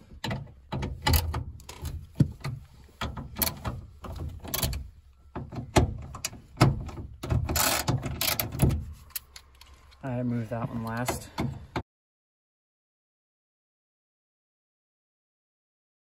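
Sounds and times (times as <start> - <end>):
ratchet wrench clicking: 7.5 - 9.4.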